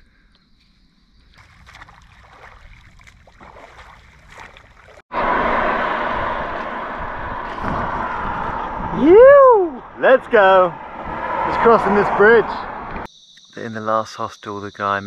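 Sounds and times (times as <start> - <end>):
swimming splashes: 1.3 - 5.0
wind rushing on microphone: 5.1 - 13.1.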